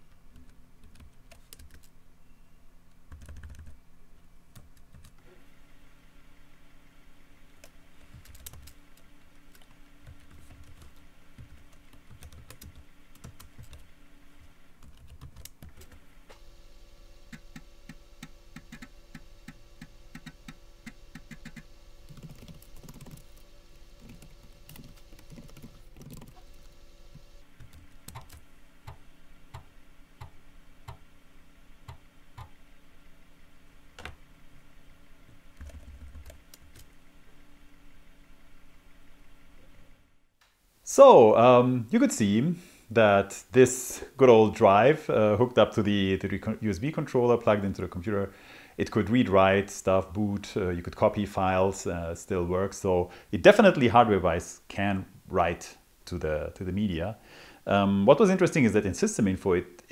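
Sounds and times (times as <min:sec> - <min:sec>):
typing on computer keyboard: 0:00.4 - 0:01.9, 0:03.1 - 0:03.8, 0:08.1 - 0:08.8, 0:09.5 - 0:13.8, 0:14.8 - 0:16.0, 0:21.2 - 0:23.4, 0:24.0 - 0:26.4, 0:35.6 - 0:36.9
floppy drive spinning and clicking: 0:17.2 - 0:31.0.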